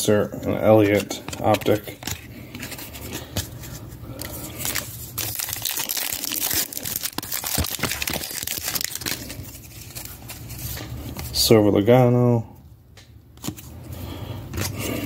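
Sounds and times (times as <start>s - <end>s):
foil pack crinkling and tearing: 4.2s - 10.9s.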